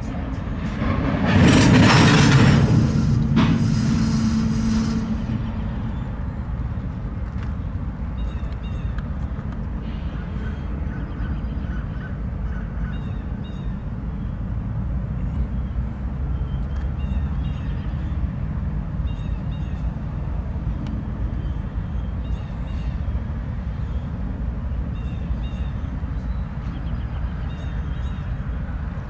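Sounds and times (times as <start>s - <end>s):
steady low rumble: 0.0s - 16.1s
train rolling: 0.0s - 29.0s.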